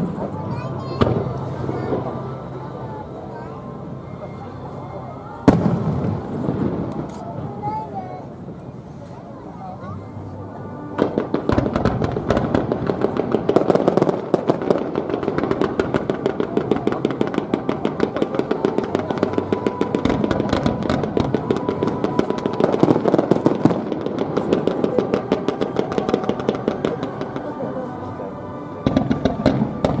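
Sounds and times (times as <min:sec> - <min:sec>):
fireworks crackling: 0:05.5 - 0:08.8, 0:11.0 - 0:30.0.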